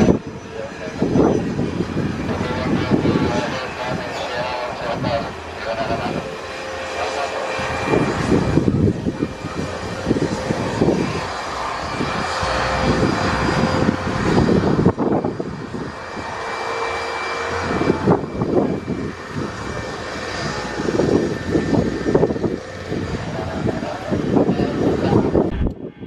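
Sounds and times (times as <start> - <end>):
high jet whine: 0.0 - 26.0
jet engine roar: 0.0 - 26.0
low rumble: 10.0 - 15.1, 25.4 - 26.0.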